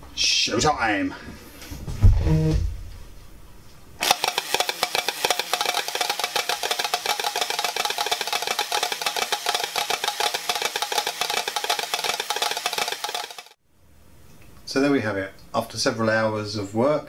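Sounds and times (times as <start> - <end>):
toy drums clattering: 4.0 - 13.6.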